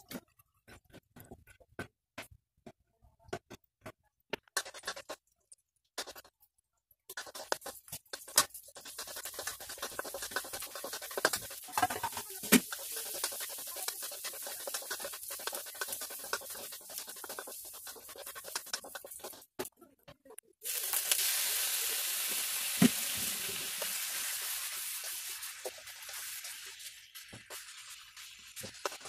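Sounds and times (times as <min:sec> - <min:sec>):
spatula scraping a wok: 0:04.5 - 0:05.2, 0:07.1 - 0:19.6, 0:22.2 - 0:29.0
chicken frying in hot oil: 0:07.1 - 0:19.6, 0:20.6 - 0:29.0
light sizzle: 0:07.1 - 0:19.6, 0:20.6 - 0:29.0.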